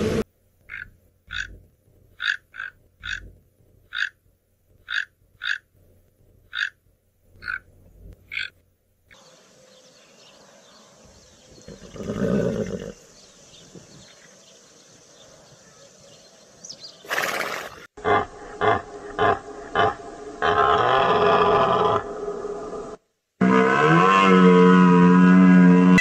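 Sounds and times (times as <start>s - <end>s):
horse snorting: 11.7s - 13.0s.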